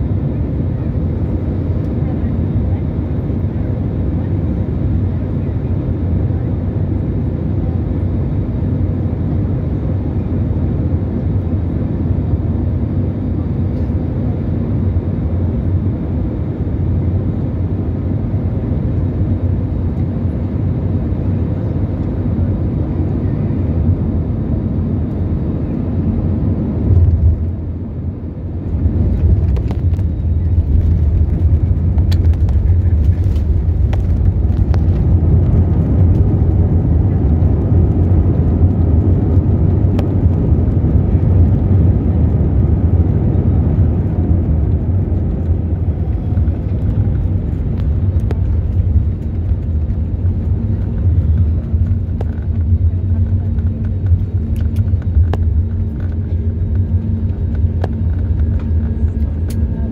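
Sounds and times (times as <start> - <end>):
airliner engine and airflow rumble: 0.0 - 59.9
plane touching down and rolling: 26.4 - 59.9.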